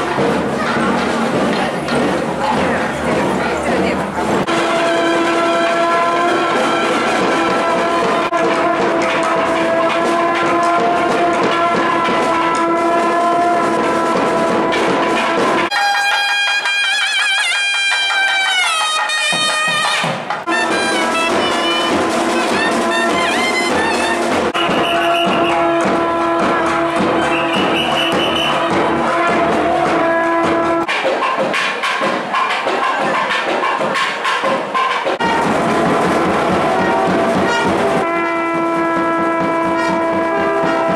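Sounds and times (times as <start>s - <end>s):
piping melody: 0.0s - 30.9s
drumming: 0.0s - 40.9s
brass horn wavering note: 4.5s - 19.8s, 20.5s - 30.9s, 35.2s - 40.9s.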